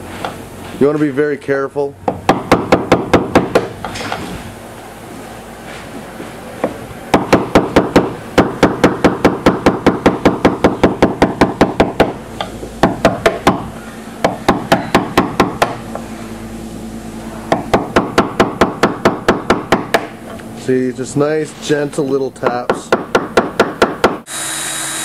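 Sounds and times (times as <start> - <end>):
person speaking: 20.5 - 23.0.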